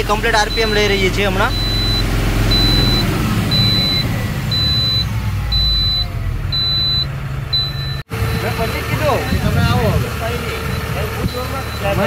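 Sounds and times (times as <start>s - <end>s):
diesel truck engine revving: 0.0s - 12.0s
high-pitched beeps: 1.5s - 9.8s.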